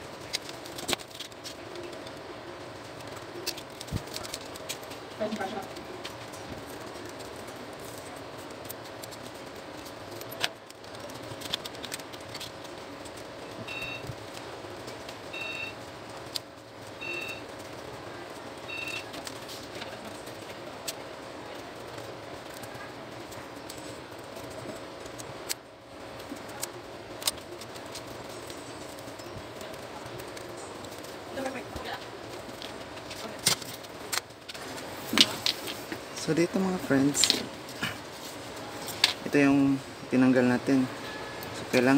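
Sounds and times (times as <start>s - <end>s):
faint steady hum: 0.0s - 41.9s
metal parts clicking and rattling: 0.1s - 35.8s.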